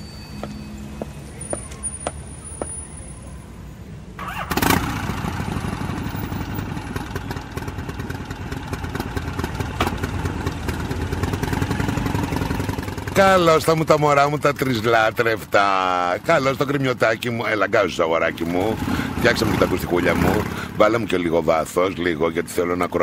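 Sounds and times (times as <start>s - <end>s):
motorcycle engine running: 4.3s - 14.0s.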